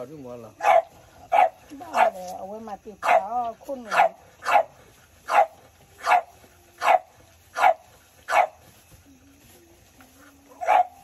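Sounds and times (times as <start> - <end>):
dog barking: 0.6 - 2.2, 3.0 - 8.6, 10.6 - 11.0.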